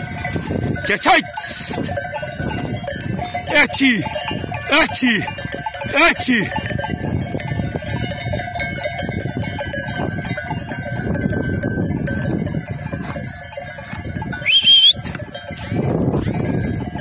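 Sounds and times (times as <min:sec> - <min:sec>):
steady rough rustle: 0:00.0 - 0:05.9, 0:06.5 - 0:17.0
animal bells jangling: 0:00.0 - 0:17.0
short high animal call: 0:14.5 - 0:15.0.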